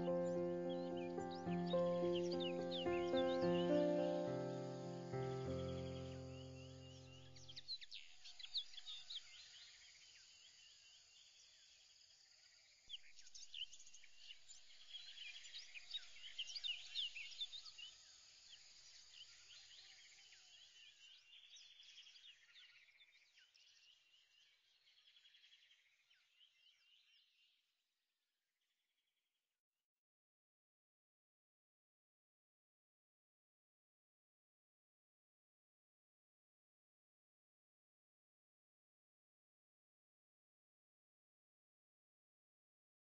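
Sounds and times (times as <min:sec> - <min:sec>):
birds chirping and trilling: 0:00.0 - 0:10.0.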